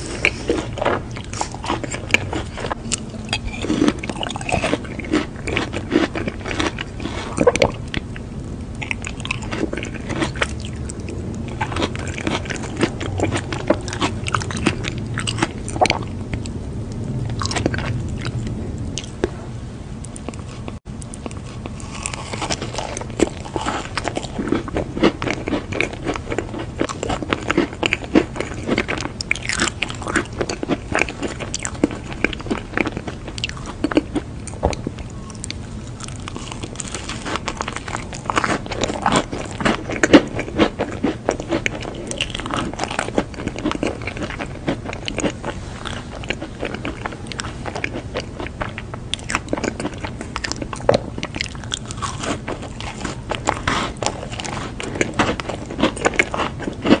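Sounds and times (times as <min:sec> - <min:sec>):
biting and chewing crisp pastry: 0:00.0 - 0:19.4, 0:20.0 - 0:57.0.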